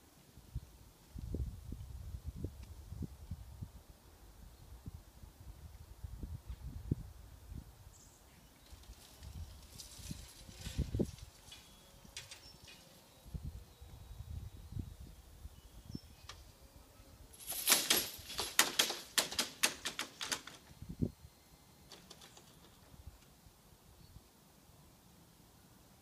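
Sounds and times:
rattling metallic clatter: 0:17.4 - 0:20.6.

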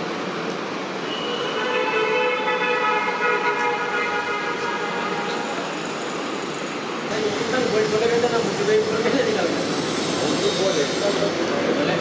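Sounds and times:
long steady horn: 0:01.0 - 0:05.7.

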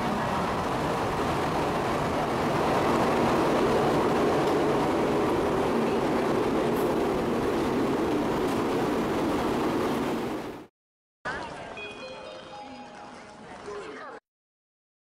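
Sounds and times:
train rolling rumble: 0:00.0 - 0:10.7.

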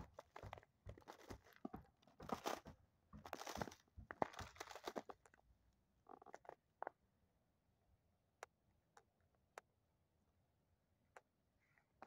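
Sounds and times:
footsteps crunching on ice pellets: 0:00.0 - 0:05.3.

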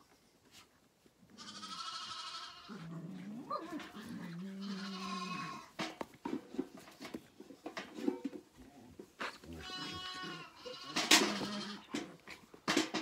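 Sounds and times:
lamb bleating: 0:01.4 - 0:02.9, 0:03.6 - 0:05.7, 0:09.6 - 0:12.1.

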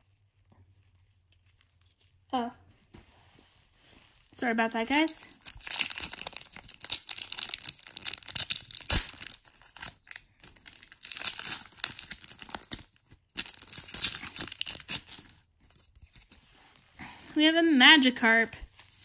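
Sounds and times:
foil wrapper tearing and crinkling: 0:04.8 - 0:16.4.

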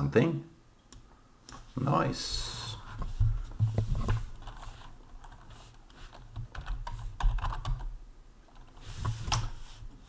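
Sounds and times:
computer keyboard typing: 0:06.1 - 0:07.9.

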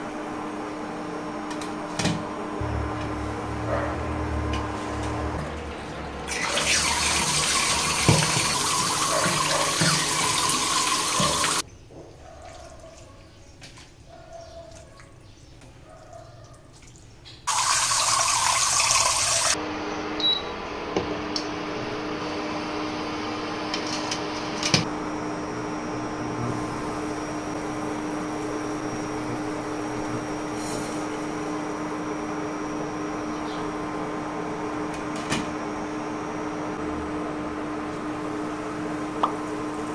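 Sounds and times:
cooktop electric hum: 0:00.0 - 0:11.7, 0:17.1 - 0:39.9
tap water pouring into pot: 0:05.4 - 0:11.6, 0:17.5 - 0:19.6.

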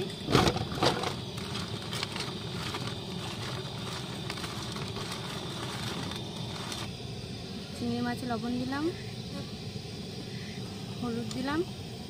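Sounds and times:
steady background noise: 0:00.0 - 0:12.0
gourds rubbed in steel bowl: 0:00.9 - 0:06.9.

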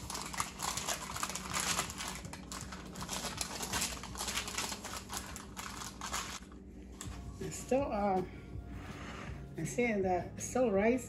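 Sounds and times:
parchment paper crinkling: 0:00.0 - 0:06.5.

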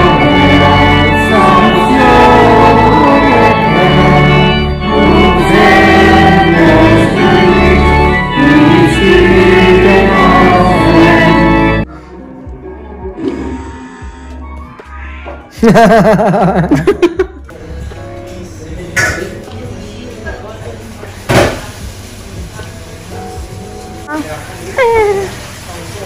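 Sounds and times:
church organ: 0:00.0 - 0:11.9
congregation singing a hymn: 0:00.0 - 0:11.9.

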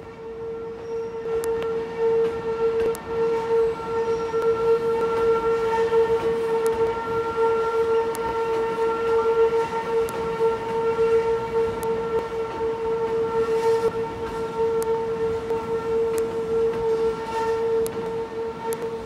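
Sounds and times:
electric train whine: 0:00.0 - 0:19.0.

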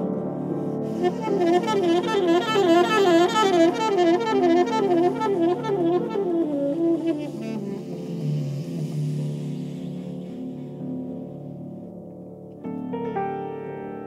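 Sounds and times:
low piano notes: 0:00.0 - 0:14.0
saxophone melody: 0:00.8 - 0:10.9.

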